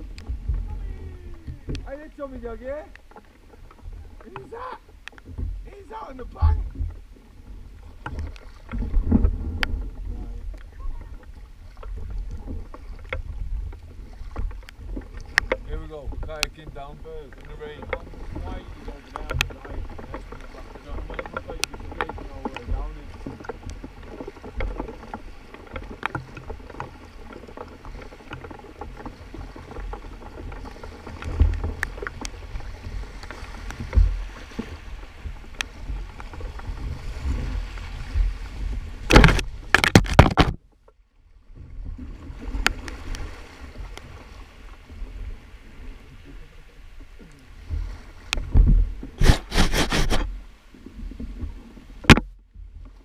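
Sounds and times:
paddle splashing and knocking: 0.0 - 53.0
river water rushing: 49.2 - 50.7.

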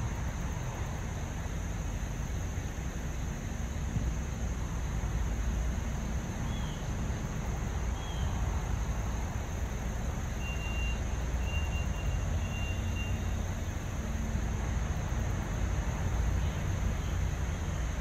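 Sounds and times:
traffic rumble: 0.0 - 18.0
vehicle reversing beeper: 10.4 - 13.4.

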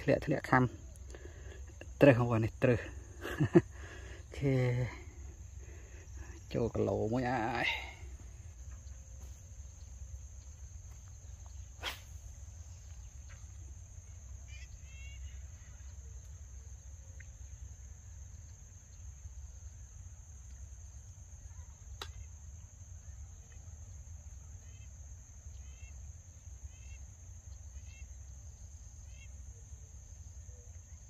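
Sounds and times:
high-pitched insect drone: 1.7 - 21.5
short chirping calls: 6.1 - 17.7.

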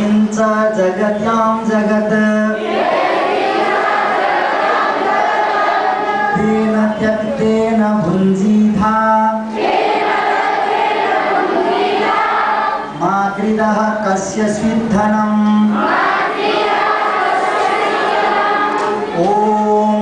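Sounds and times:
children chanting in unison: 2.6 - 6.7, 9.5 - 13.0, 15.7 - 19.3.

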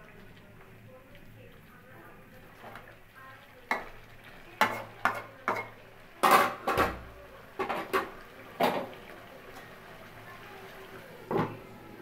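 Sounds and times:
metal spatula clinking on pan: 4.6 - 6.8.

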